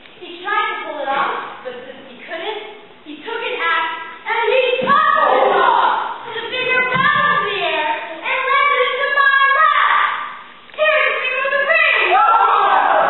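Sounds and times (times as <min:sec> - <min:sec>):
people speaking: 0:00.2 - 0:10.1, 0:10.8 - 0:12.8
young voices singing together: 0:04.5 - 0:07.2.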